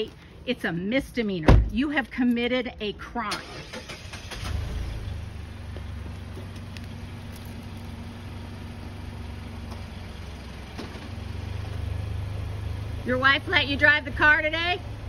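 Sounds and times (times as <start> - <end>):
car engine idling: 3.4 - 15.0.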